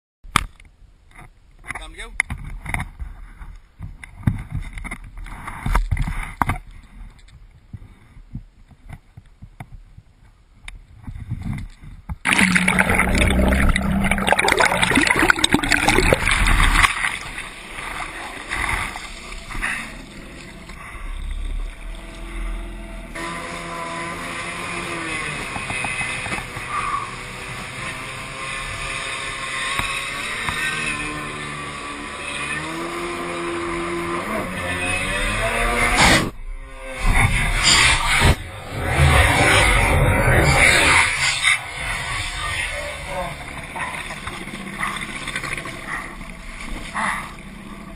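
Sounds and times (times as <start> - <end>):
water splashing and sloshing: 11.5 - 22.8, 41.1 - 47.9
jet ski engine running: 16.2 - 36.0, 41.8 - 47.9.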